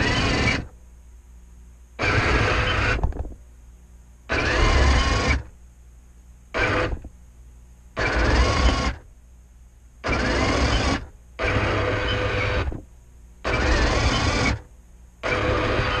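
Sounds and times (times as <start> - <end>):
electric motors whining: 0.0 - 0.8, 2.0 - 3.1, 4.3 - 5.5, 6.6 - 7.1, 8.0 - 9.0, 10.0 - 12.8, 13.4 - 16.0.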